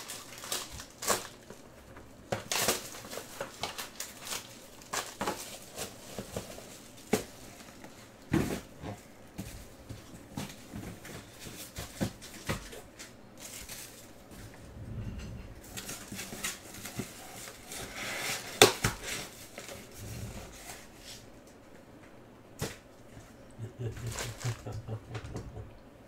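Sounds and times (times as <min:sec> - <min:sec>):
foil wrappers crinkling: 0:00.0 - 0:08.0, 0:10.4 - 0:14.2.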